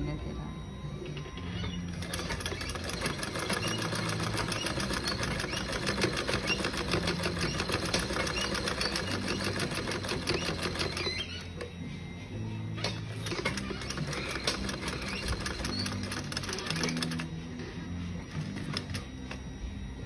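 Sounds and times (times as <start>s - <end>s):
sewing machine stitching: 1.9s - 11.5s, 13.2s - 17.3s.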